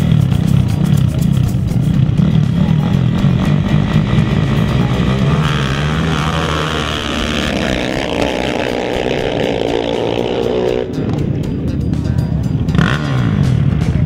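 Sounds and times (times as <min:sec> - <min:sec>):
atv engines revving high: 0:00.0 - 0:14.0.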